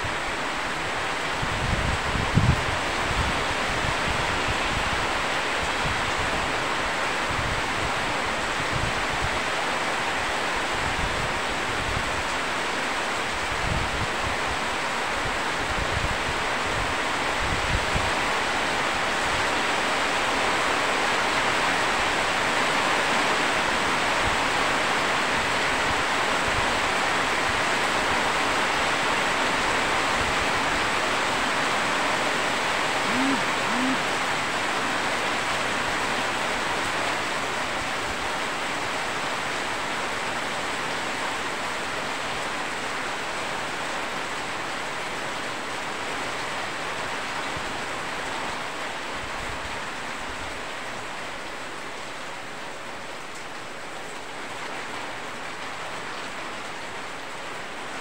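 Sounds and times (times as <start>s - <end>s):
heavy rain falling: 0.0s - 58.0s
short low rising calls: 32.9s - 35.0s.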